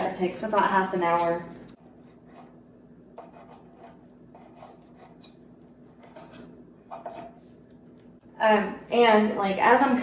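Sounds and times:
knife scraping on cutting board: 0:03.2 - 0:07.6.

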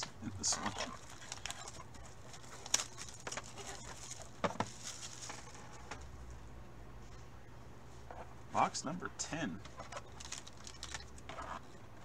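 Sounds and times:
cards rustling: 0:00.4 - 0:06.1.

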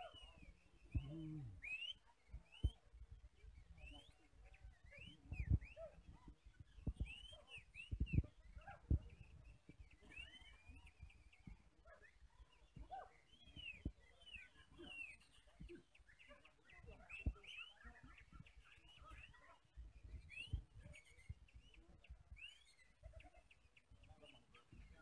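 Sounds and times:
birds singing whistles and chirps: 0:00.0 - 0:25.0.

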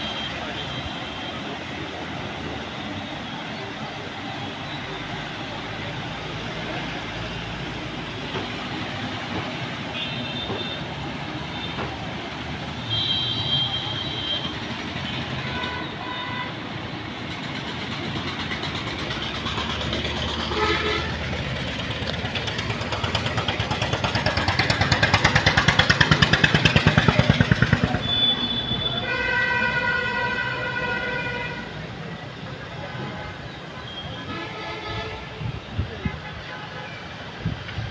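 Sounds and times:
traffic rumble: 0:00.0 - 0:37.9
car horns beeping: 0:12.8 - 0:16.6, 0:20.5 - 0:21.2, 0:27.9 - 0:31.7.

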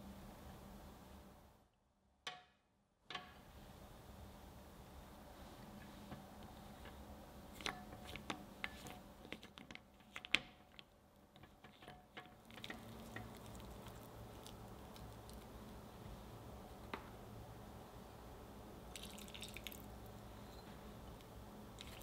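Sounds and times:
stirring melting chocolate: 0:06.4 - 0:16.0.

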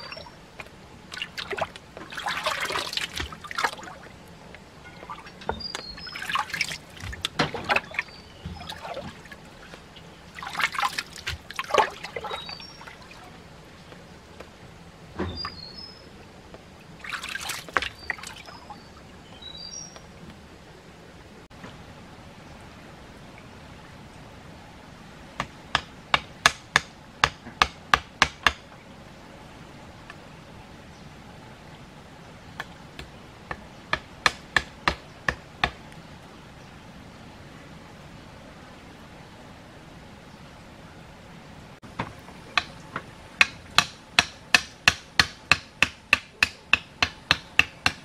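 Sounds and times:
hammer knocking bamboo stake: 0:25.4 - 0:28.6, 0:33.0 - 0:35.8, 0:43.4 - 0:48.0.

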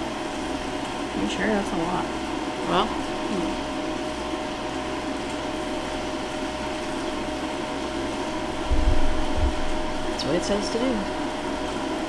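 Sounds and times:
air fryer fan hum: 0:00.0 - 0:12.0
low bump: 0:08.7 - 0:09.9.

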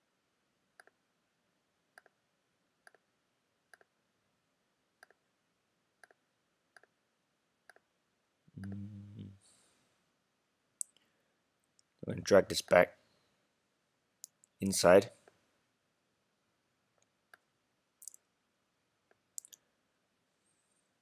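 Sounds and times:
person humming briefly: 0:08.6 - 0:09.4.

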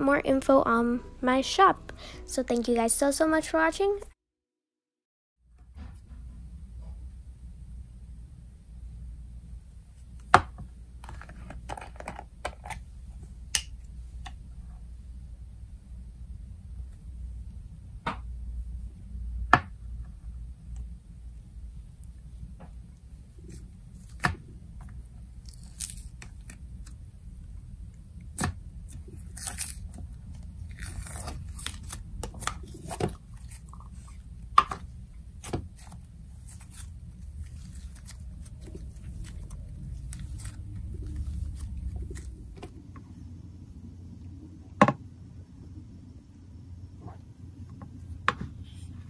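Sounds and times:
slime squishing and crunching: 0:25.3 - 0:26.9, 0:28.3 - 0:42.7.

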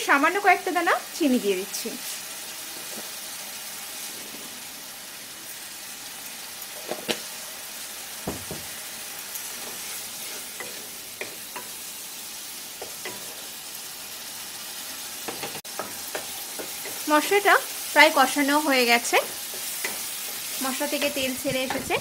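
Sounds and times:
masala sizzling and bubbling in oil: 0:00.0 - 0:22.0
spatula scraping a pan: 0:02.6 - 0:04.8, 0:09.4 - 0:11.8, 0:12.8 - 0:13.6, 0:18.8 - 0:22.0.

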